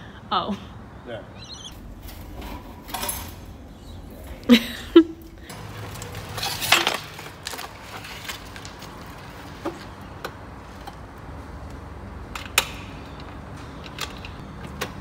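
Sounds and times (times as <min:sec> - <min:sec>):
metal parts clinking: 0:02.1 - 0:03.6.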